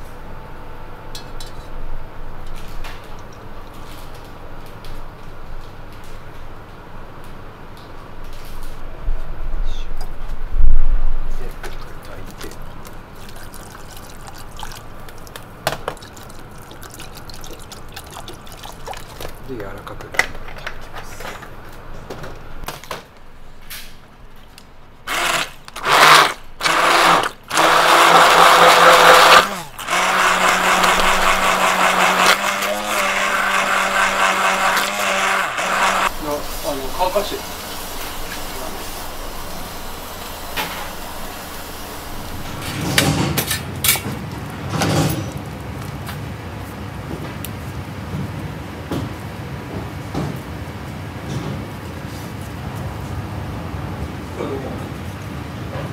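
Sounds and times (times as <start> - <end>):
kitchen background hum: 0.0 - 55.9
stick blender whirring: 25.1 - 36.4.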